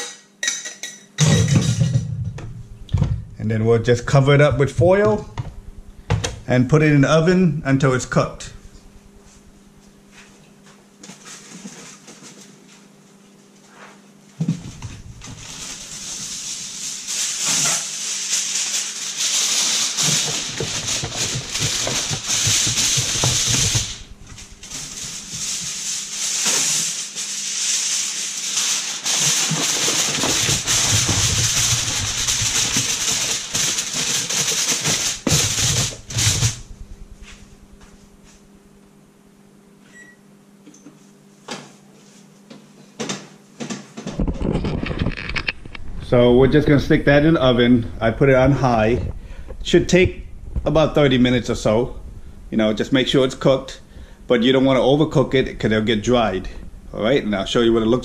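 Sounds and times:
aluminium foil crinkling: 15.2s - 36.6s.

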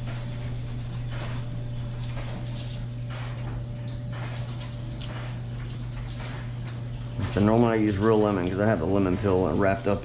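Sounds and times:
seasoning shaker rustling: 0.0s - 3.1s
steady low hum: 0.0s - 10.0s.

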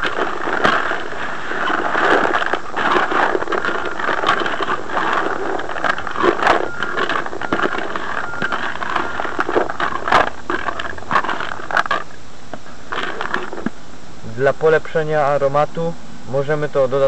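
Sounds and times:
bait rattling in plastic bucket: 0.0s - 12.2s, 12.9s - 13.7s.

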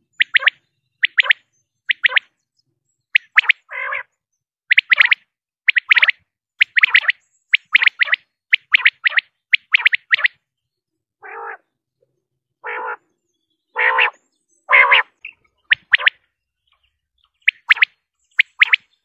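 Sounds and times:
quail calling: 0.2s - 2.3s, 3.2s - 4.1s, 11.2s - 11.7s, 12.6s - 13.1s, 13.7s - 16.2s.

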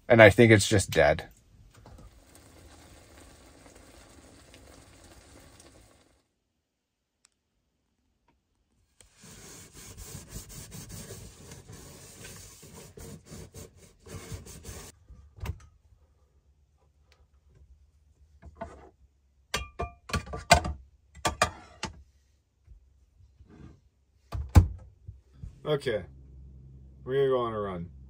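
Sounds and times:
food sizzling in frying pan: 2.1s - 6.2s.

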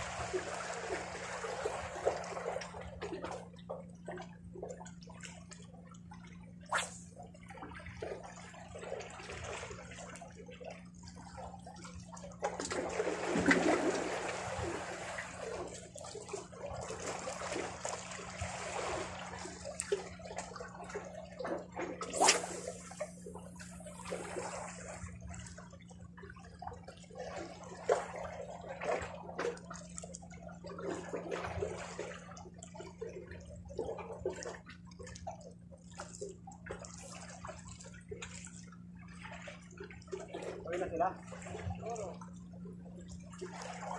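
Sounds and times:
sharp water splashes: 6.6s - 7.2s, 21.8s - 25.1s.

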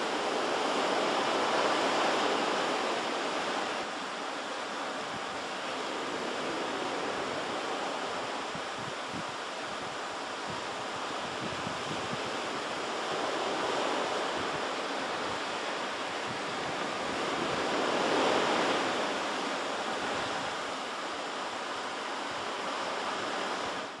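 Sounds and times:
surf washing against shore: 0.0s - 24.0s
wind buffeting microphone: 5.0s - 20.7s.

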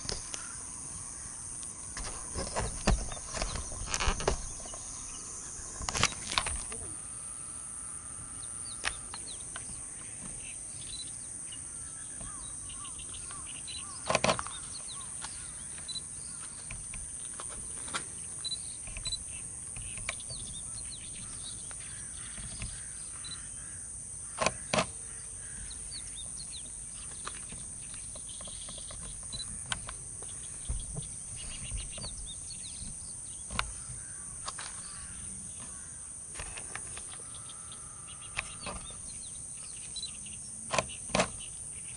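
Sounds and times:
faint bird chirps: 0.0s - 17.4s, 18.1s - 36.1s, 37.0s - 41.9s
high-pitched insect drone: 0.0s - 41.9s
small clicks: 5.6s - 6.8s, 8.4s - 9.8s, 13.2s - 20.6s, 27.0s - 30.3s, 35.6s - 39.2s.

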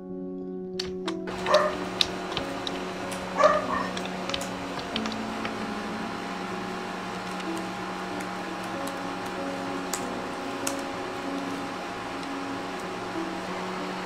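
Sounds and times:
laptop keyboard clicks: 0.8s - 5.6s
low hum with held tones: 0.9s - 14.0s.

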